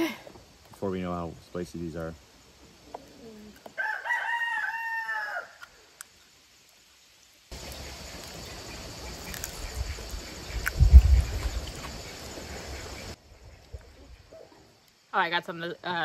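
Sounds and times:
rooster crowing: 3.8 - 5.6.

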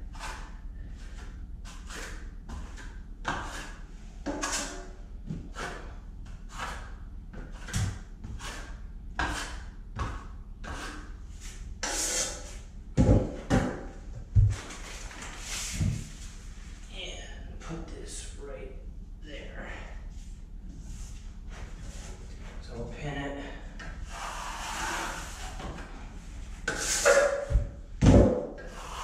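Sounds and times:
trowel scraping joint compound: 1.1 - 4.9, 6.5 - 12.6, 26.6 - 27.6.

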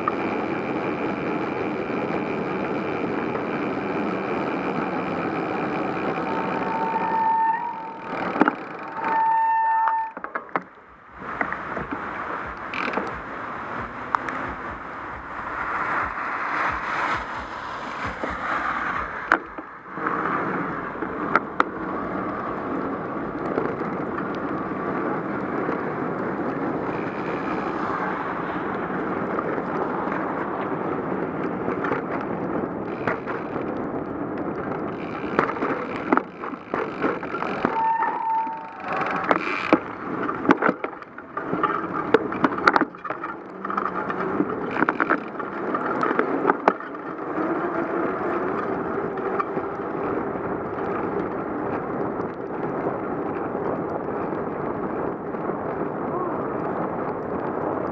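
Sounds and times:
bicycle tyres hissing on wet road: 11.0 - 23.2, 24.3 - 31.6, 32.8 - 42.1.

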